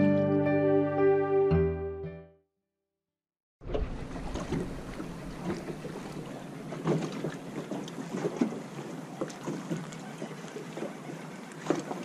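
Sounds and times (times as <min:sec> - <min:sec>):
small waves slapping boat hull: 0:03.6 - 0:12.0.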